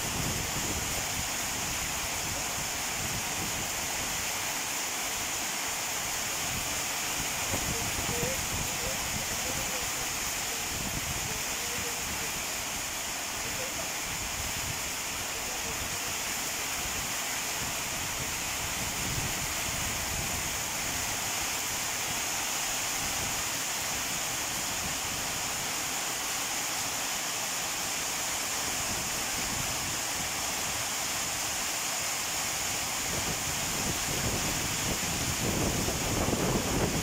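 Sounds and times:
heavy rain pouring: 0.0s - 37.0s.

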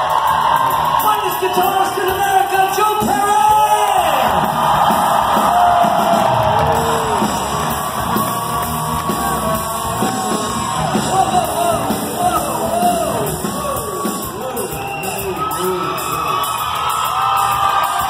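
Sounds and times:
crowd shouting: 0.0s - 18.0s
live rock band playing: 0.0s - 18.0s.

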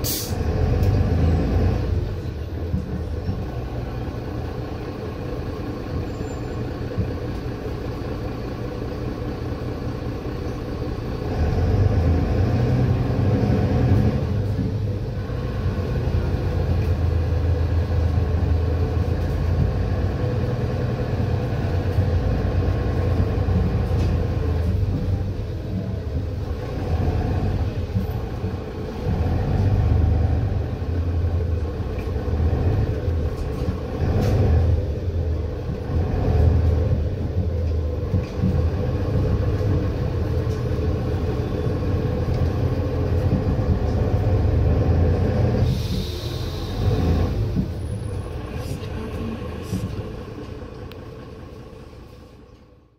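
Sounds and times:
short air hiss: 0.0s - 0.4s, 45.6s - 46.9s
bus engine rumble: 0.0s - 52.9s.

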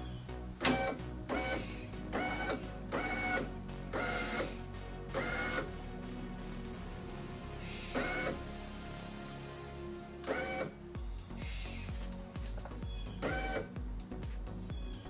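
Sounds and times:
power window motor whining: 0.6s - 4.5s, 8.0s - 8.4s.

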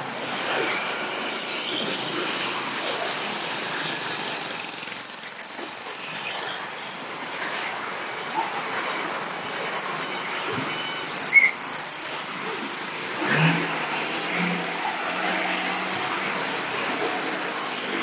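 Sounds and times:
motorcycle engines passing: 0.0s - 18.0s
car tyres on road: 10.4s - 18.0s.

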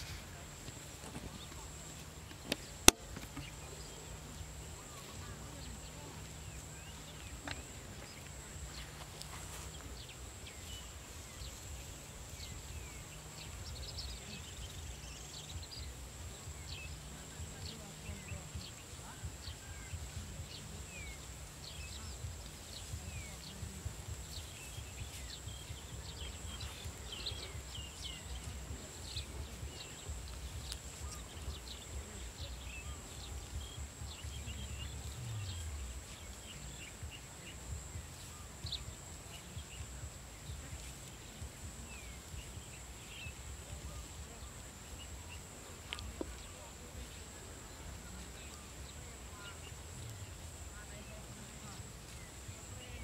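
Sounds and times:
low uneven rumble: 0.0s - 53.0s
small birds chirping: 0.0s - 53.0s.

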